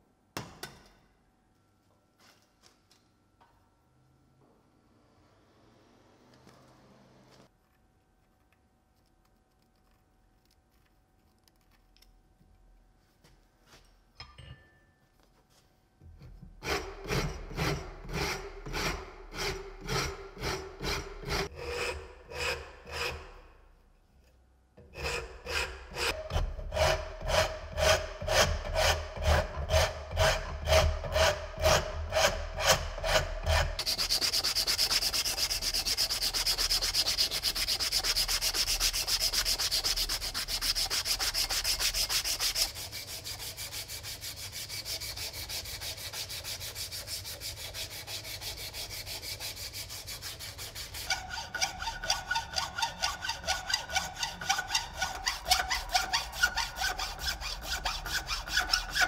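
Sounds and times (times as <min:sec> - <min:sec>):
hacksaw cutting wood: 0:16.6 - 0:23.4, 0:24.8 - 0:59.0
file rasping on steel: 0:16.6 - 0:23.5, 0:24.8 - 0:59.0
fast scraping on metal: 0:24.9 - 0:59.0.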